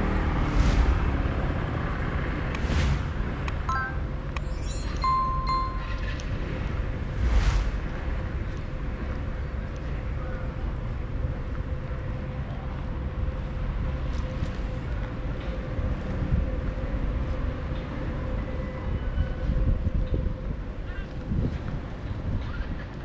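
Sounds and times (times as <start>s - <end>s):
low outdoor rumble: 0.0s - 17.6s.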